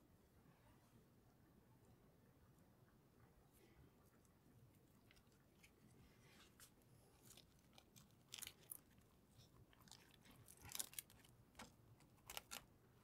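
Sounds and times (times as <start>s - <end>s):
pancake crackling and rustling: 4.9s - 12.7s.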